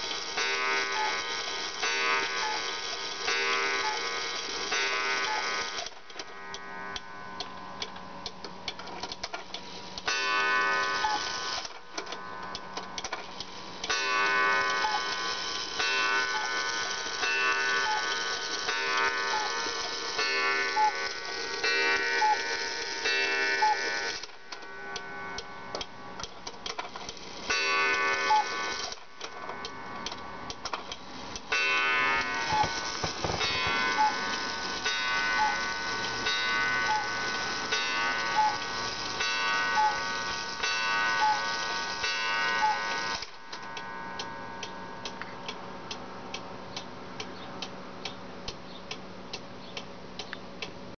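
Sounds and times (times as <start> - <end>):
cuckoo clock calling: 0.0 - 8.0, 9.2 - 50.4
clock ticking: 0.0 - 50.8
clock hand clicks: 43.7 - 50.8.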